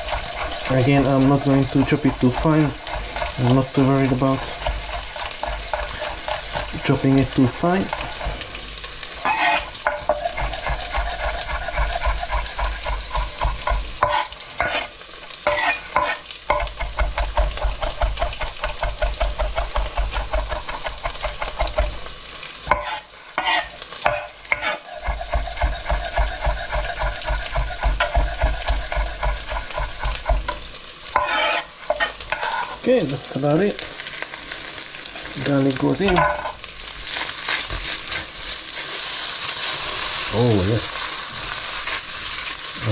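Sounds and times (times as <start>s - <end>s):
bacon sizzling in frying pan: 0.0s - 42.9s
knife chopping on cutting board: 1.8s - 6.9s, 9.2s - 14.9s, 15.5s - 22.0s, 22.7s - 30.6s.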